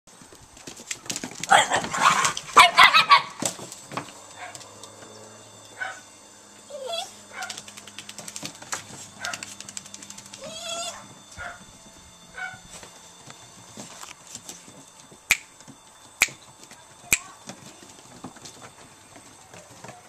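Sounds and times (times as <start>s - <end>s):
puppies yipping and whining: 1.4s - 3.6s, 4.4s - 13.0s.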